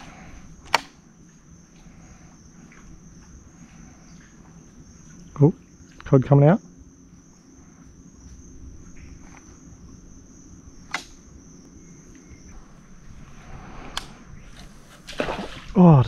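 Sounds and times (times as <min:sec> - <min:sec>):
high-pitched insect chorus: 0:00.0 - 0:16.0
low background rumble: 0:00.0 - 0:16.0
sharp clicks: 0:00.6 - 0:01.0, 0:10.8 - 0:11.2.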